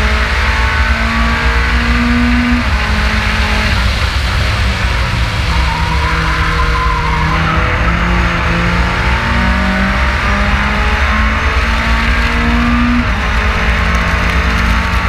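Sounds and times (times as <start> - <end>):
race car engine running hard: 0.0 - 15.0
tyre squeal: 4.1 - 10.0.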